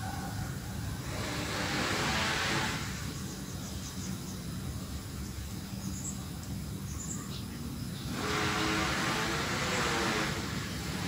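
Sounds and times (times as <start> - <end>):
passing motor vehicle engine: 0.0 - 3.8, 8.0 - 11.0
faint bird chirps: 5.2 - 8.2.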